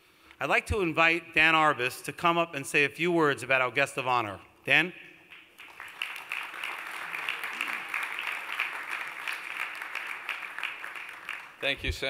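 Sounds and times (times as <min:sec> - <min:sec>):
audience applauding: 0:05.3 - 0:11.8.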